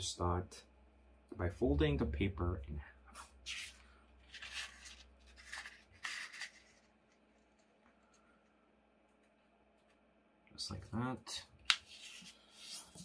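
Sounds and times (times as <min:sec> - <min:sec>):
paper folding swishes: 0:11.7 - 0:13.0.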